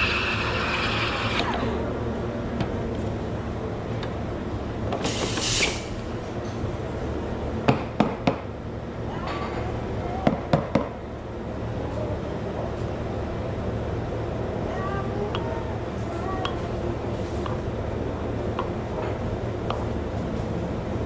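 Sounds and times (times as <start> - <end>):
short hiss: 5.0 - 5.9.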